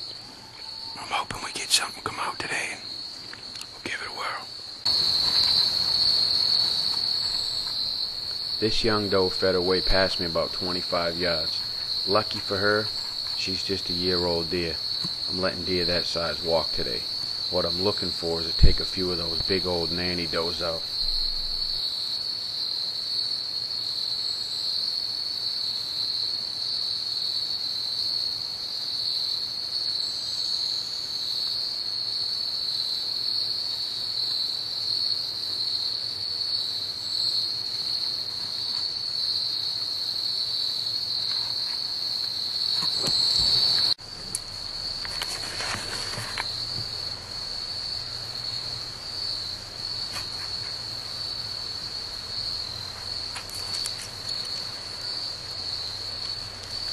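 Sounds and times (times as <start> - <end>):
insects trilling: 0.0 - 56.9
rustling noise: 4.9 - 13.6, 45.0 - 47.0, 50.0 - 50.9, 52.9 - 54.7.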